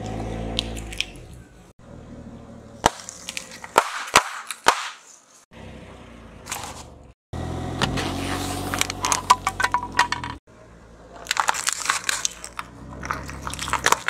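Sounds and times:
car tyres rumbling on asphalt: 0:00.0 - 0:03.8, 0:05.5 - 0:14.0
objects cracking under car tyre: 0:02.8 - 0:05.0, 0:11.1 - 0:14.0.

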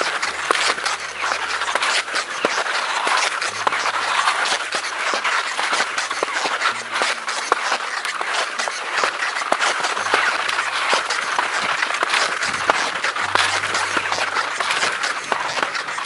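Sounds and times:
skis crunching over crusty snow: 0:00.0 - 0:16.0.

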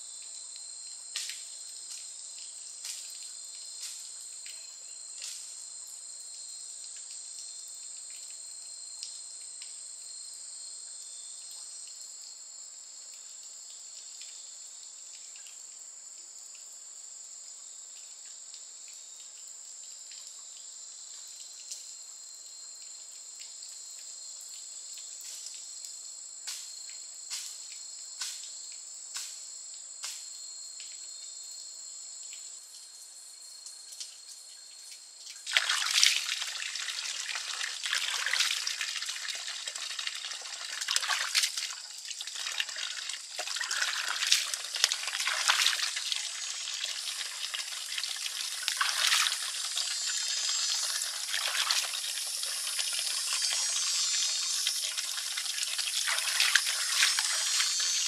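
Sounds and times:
insects buzzing: 0:23.8 - 0:58.0
hands washing in water: 0:35.4 - 0:58.0
water pouring into basin: 0:35.4 - 0:58.0.

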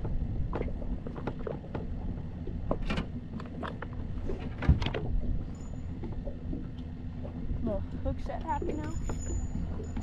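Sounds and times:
wind and water rumble: 0:00.0 - 0:10.0
clunks and knocks on boat deck: 0:02.6 - 0:05.2.

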